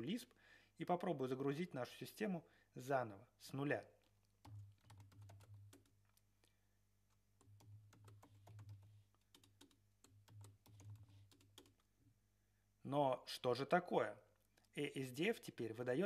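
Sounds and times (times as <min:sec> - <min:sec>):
keyboard typing: 0:04.0 - 0:11.9.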